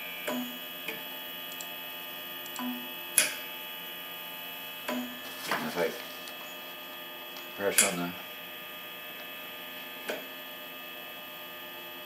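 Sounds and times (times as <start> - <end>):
stepper motor electrical hum: 0.0 - 12.0
electric valve clicking: 2.4 - 3.4.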